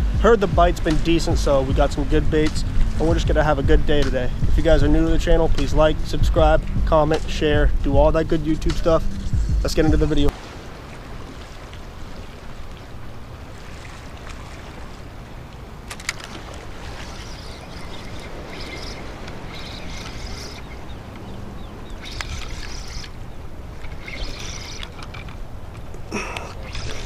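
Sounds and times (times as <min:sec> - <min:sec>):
wind noise on microphone: 0:00.0 - 0:10.4.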